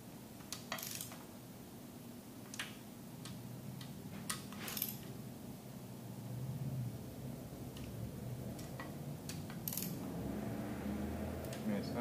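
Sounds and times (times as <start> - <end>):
low shop hum: 0.0 - 12.0
ratchet wrench clicking: 0.7 - 1.2, 9.6 - 10.0.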